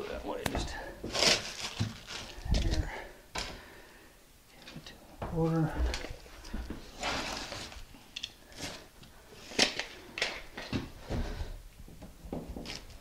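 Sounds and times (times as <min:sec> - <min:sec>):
scraping rustle: 0:06.5 - 0:07.9.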